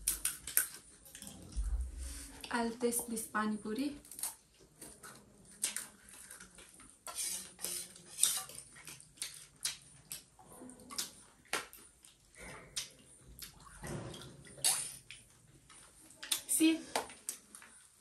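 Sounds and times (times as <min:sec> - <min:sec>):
cutlery clinking on dishes: 0:07.1 - 0:09.0.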